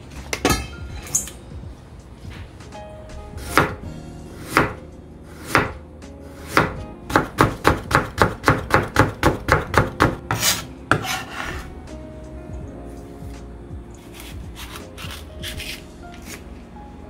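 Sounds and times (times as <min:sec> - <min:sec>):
knife chopping on cutting board: 0:03.4 - 0:03.8, 0:04.4 - 0:04.8, 0:05.4 - 0:05.8, 0:06.4 - 0:11.6.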